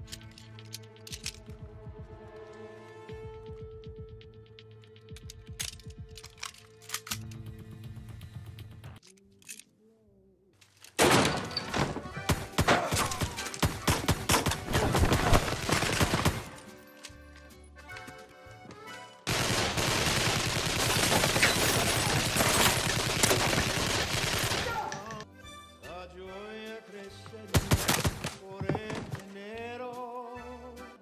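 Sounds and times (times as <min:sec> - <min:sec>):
rapid gunfire: 0:12.3 - 0:16.6, 0:19.3 - 0:24.9
sustained heavy gunfire: 0:19.3 - 0:24.8.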